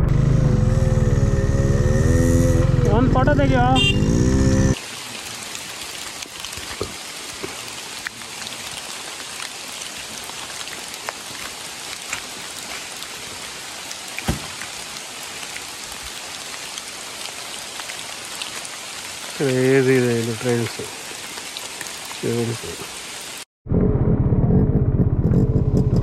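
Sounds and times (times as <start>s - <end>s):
steady rain falling: 4.5s - 23.5s
raindrops ticking close by: 4.8s - 23.4s.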